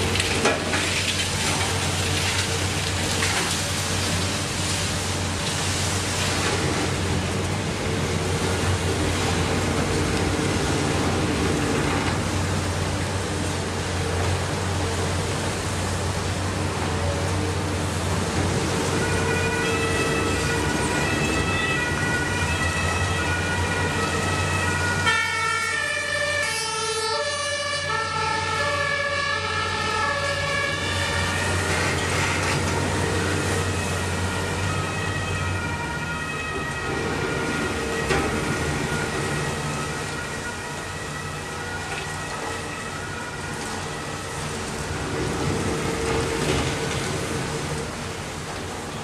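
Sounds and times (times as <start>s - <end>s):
excavators diesel and hydraulic drone: 0.0s - 49.0s
two-tone siren: 18.6s - 47.0s.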